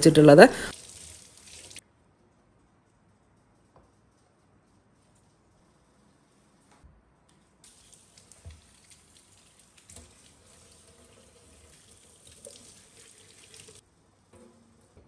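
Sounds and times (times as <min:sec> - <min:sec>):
tap water splashing into steel sink: 0:07.7 - 0:13.8.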